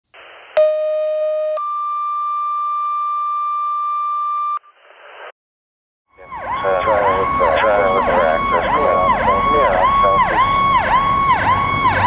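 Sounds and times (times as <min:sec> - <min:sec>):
electronic beep tone: 0:00.6 - 0:04.7.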